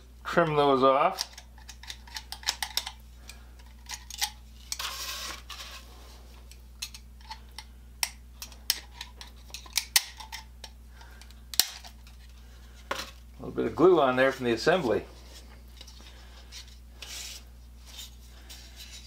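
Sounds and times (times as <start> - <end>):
blade scraping wood: 4.7 - 5.9.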